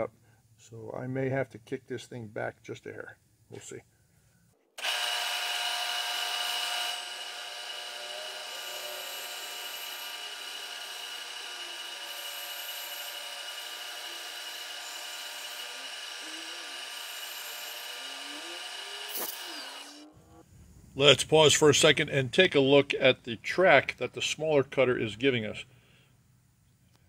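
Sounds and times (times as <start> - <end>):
end mill cutting metal: 4.8 - 20.0
milling machine spindle whine: 4.8 - 20.0.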